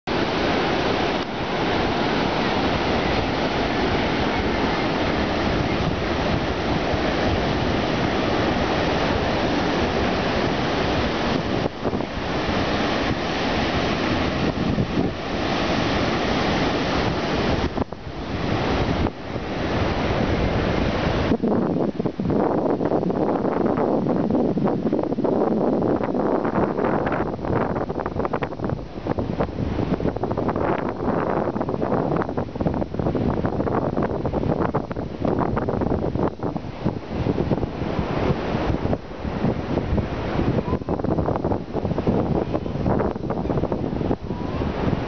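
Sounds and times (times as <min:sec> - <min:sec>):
ocean waves breaking: 0:00.1 - 0:22.4, 0:27.4 - 0:45.0
wind buffeting microphone: 0:00.1 - 0:45.0.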